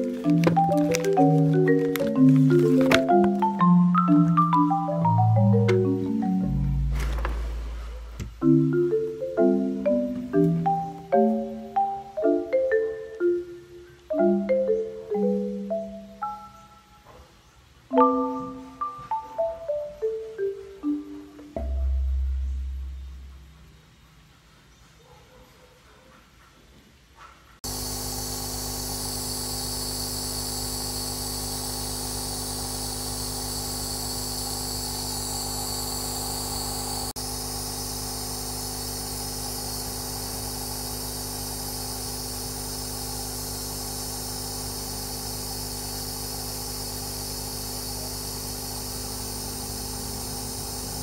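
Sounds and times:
nebulizer motor hum: 0.0 - 8.6, 27.6 - 51.0
high hiss of misting: 0.0 - 17.0, 27.6 - 51.0.

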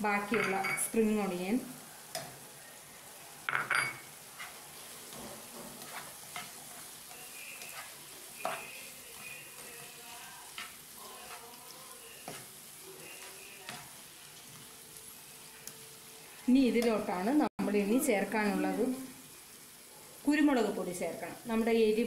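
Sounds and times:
vegetables sizzling in pan: 0.0 - 22.0
spoon scraping and clacking pan: 3.5 - 14.0.

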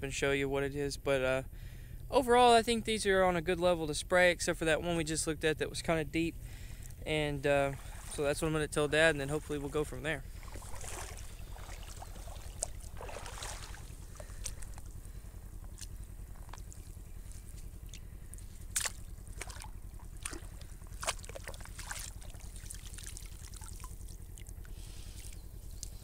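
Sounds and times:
steady low hum: 0.0 - 26.0
hand sloshing in water: 7.6 - 25.4
water dripping: 10.4 - 14.9, 15.6 - 26.0.

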